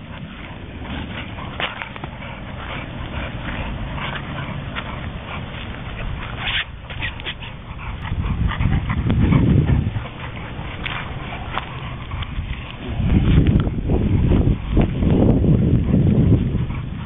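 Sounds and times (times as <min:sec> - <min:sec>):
dogs growling and playing: 0:00.0 - 0:17.0
loud low rumble: 0:07.6 - 0:17.0.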